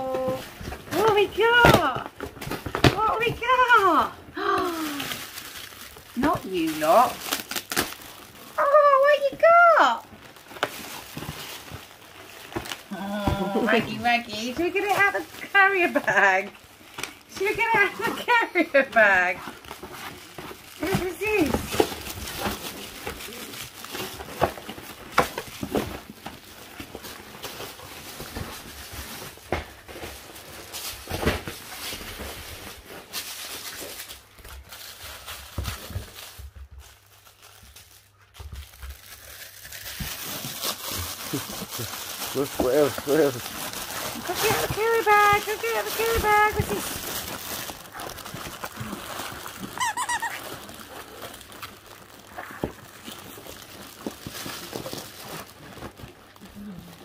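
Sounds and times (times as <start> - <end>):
packaging and fabric rustling: 0.0 - 57.0
dog toy squeaking: 49.8 - 50.5.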